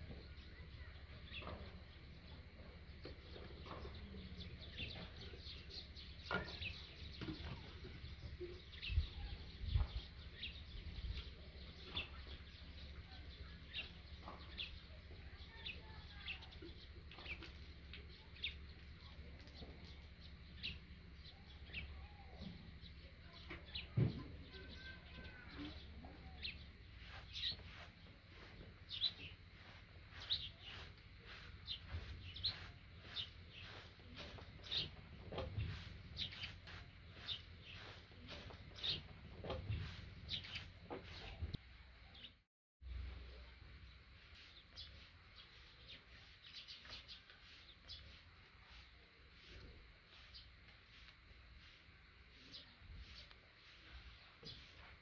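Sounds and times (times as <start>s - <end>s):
small birds chirping: 0.0s - 55.0s
hand broom sweeping dirt: 25.7s - 41.6s, 43.3s - 55.0s.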